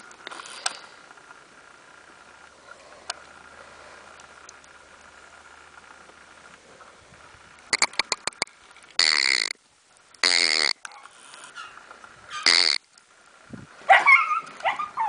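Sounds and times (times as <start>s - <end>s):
sharp clicks: 7.6s - 9.6s
puppy whining and yelping: 13.9s - 15.0s.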